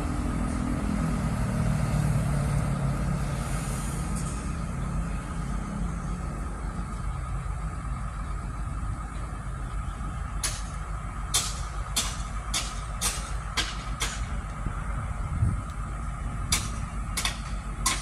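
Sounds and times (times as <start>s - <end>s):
heavy machinery diesel engine running: 0.0s - 18.0s.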